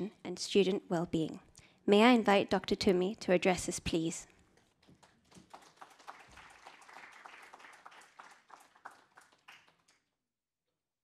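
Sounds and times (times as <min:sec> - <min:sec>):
audience applause: 0:05.0 - 0:10.0.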